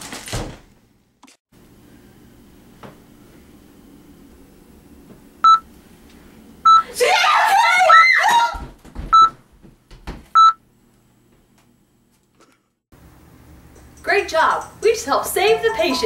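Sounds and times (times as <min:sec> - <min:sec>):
electronic beeps: 0:05.4 - 0:05.6
person shrieking: 0:06.8 - 0:08.6.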